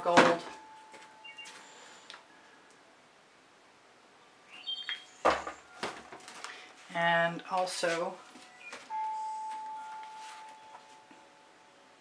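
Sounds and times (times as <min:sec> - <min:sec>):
ringing chime tone: 0:00.5 - 0:01.9, 0:08.2 - 0:12.0.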